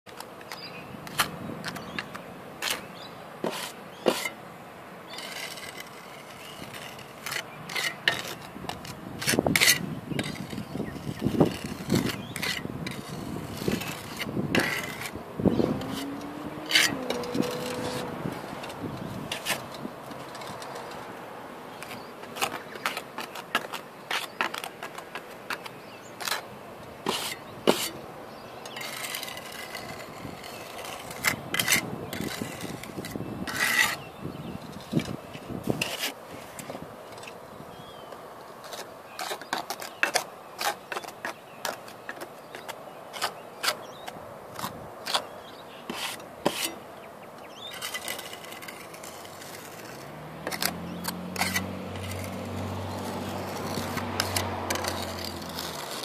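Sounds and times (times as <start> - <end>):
trowel scraping and tapping on concrete: 3.4 - 4.4, 5.1 - 15.2, 15.8 - 21.1, 21.8 - 26.5, 27.1 - 28.0, 28.7 - 34.0, 45.9 - 46.8, 47.7 - 56.0.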